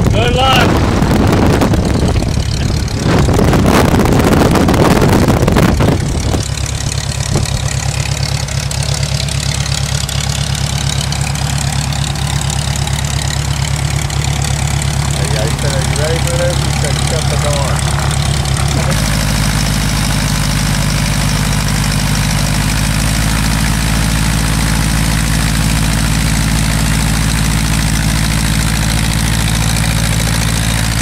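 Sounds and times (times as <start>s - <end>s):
small aircraft engine idling: 0.0s - 31.0s
man talking: 0.1s - 0.7s, 15.2s - 18.2s.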